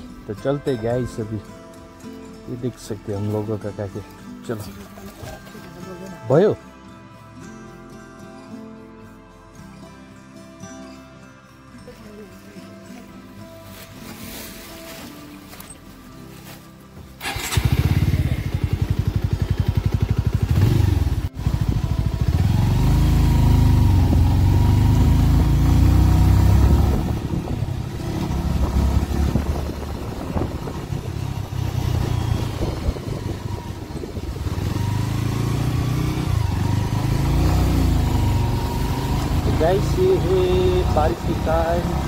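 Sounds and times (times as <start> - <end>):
motorcycle engine: 17.2 - 42.0.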